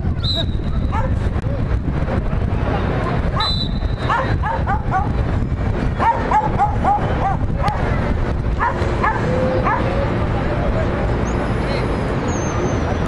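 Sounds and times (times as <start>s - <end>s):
steady low rumble: 0.0s - 12.2s
dog yapping: 4.1s - 5.1s, 6.0s - 7.8s, 8.6s - 9.9s.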